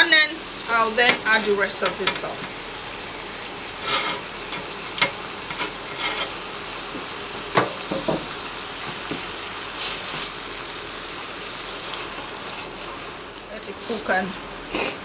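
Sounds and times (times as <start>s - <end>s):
vegetables sizzling in oil: 0.0s - 15.0s
spatula scraping and knocking pan: 3.8s - 9.3s.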